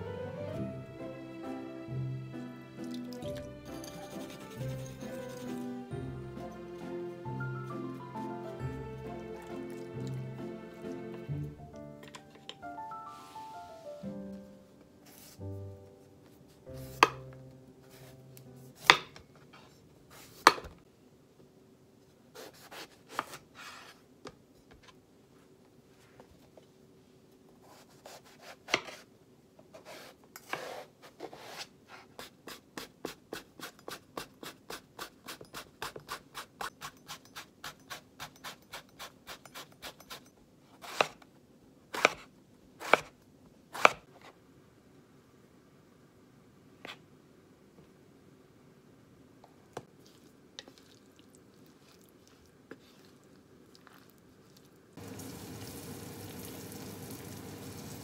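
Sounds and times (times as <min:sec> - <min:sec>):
knife chopping on cutting board: 0:18.8 - 0:19.2, 0:22.4 - 0:23.4, 0:40.8 - 0:41.2, 0:41.9 - 0:42.2, 0:42.8 - 0:43.1, 0:43.8 - 0:44.0
knife slicing on cutting board: 0:22.4 - 0:24.0, 0:29.8 - 0:37.0, 0:40.8 - 0:41.2, 0:41.9 - 0:42.2, 0:42.8 - 0:43.1, 0:43.8 - 0:44.0.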